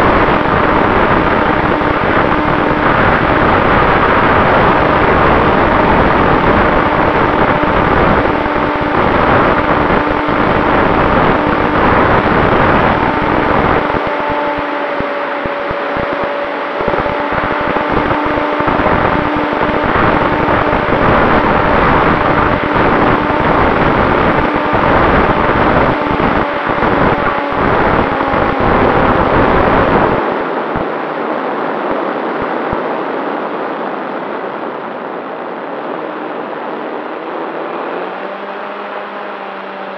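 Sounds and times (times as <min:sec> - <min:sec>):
model plane motor and propeller: 0:00.0 - 0:30.2
faint steady whine: 0:00.0 - 0:39.9
wind rush: 0:00.0 - 0:39.9.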